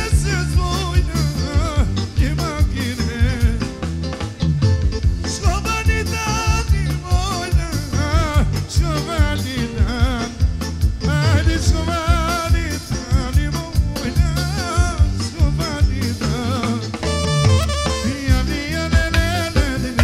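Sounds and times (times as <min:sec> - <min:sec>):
bass line: 0:00.0 - 0:20.0
drums keeping a beat: 0:00.0 - 0:20.0.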